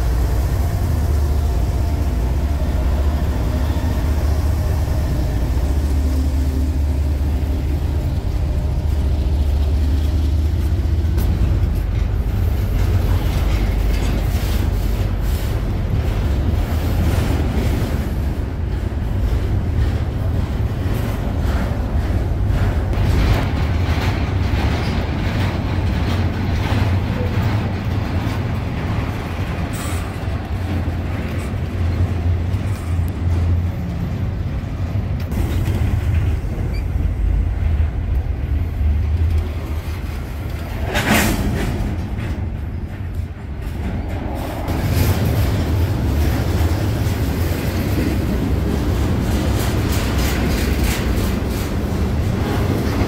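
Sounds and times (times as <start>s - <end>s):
train rumble: 0.0s - 53.0s
wheels clicking over rail joints: 0.0s - 53.0s.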